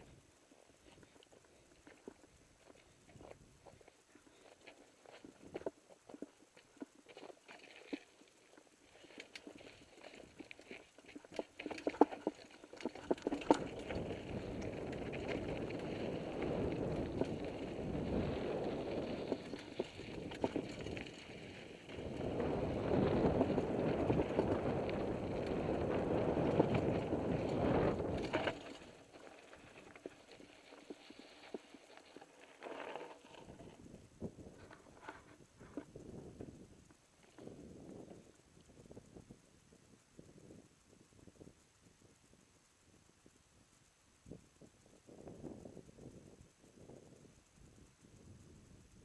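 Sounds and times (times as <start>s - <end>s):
wind: 0.0s - 49.0s
bike rattling over rocks: 0.8s - 36.6s
tyres rushing on gravel: 7.7s - 33.3s.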